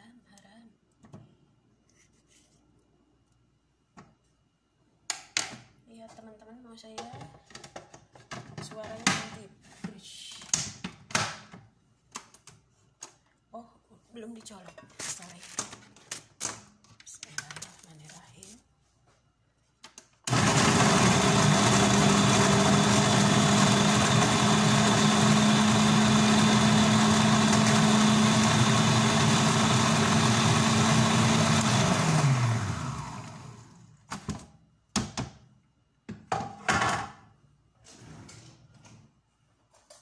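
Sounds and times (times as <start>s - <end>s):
food processor motor: 20.3s - 33.8s.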